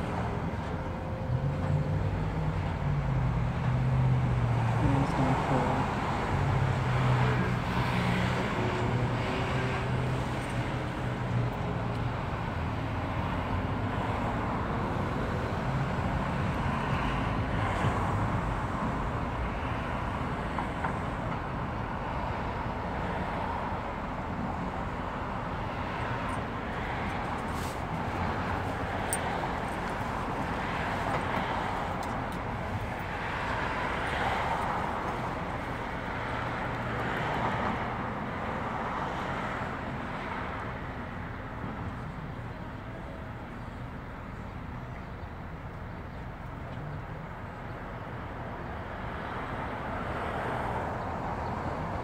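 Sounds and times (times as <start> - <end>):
cars passing through intersection: 0.0 - 52.0.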